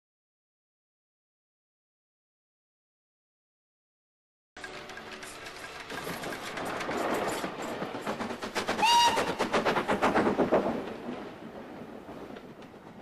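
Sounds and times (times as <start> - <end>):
steam locomotive exhaust beats: 4.6 - 11.6.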